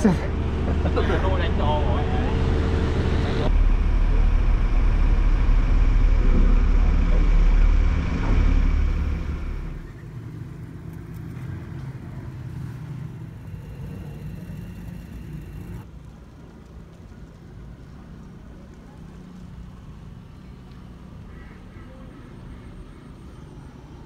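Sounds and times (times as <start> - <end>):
loud low engine rumble: 0.0 - 10.6, 11.4 - 15.9.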